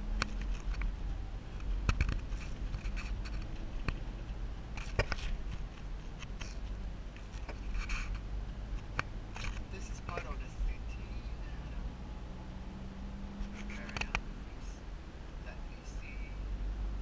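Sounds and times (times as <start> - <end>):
car engine drone and road noise: 0.0 - 17.0
sharp clicks and rattles: 0.1 - 10.5.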